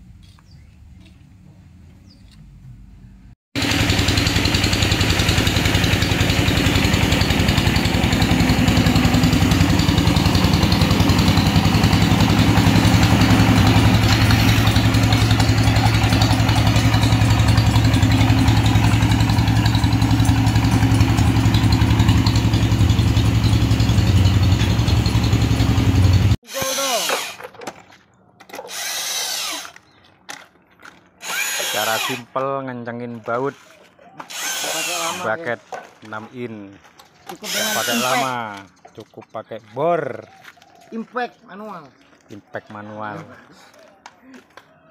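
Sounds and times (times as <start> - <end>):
engine running with pulsing hum: 2.3 - 26.4.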